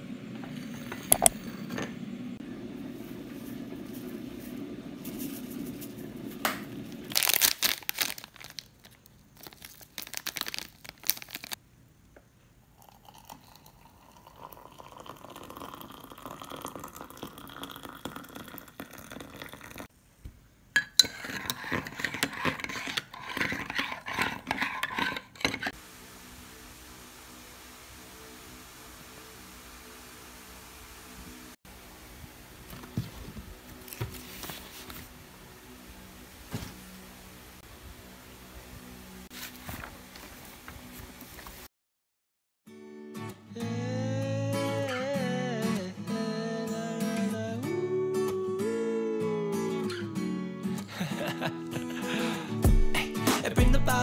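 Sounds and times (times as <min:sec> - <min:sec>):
low hum: 0:00.0 - 0:07.1
water pouring into mug: 0:12.8 - 0:19.9
metal spoon clinking mug: 0:20.8 - 0:25.7.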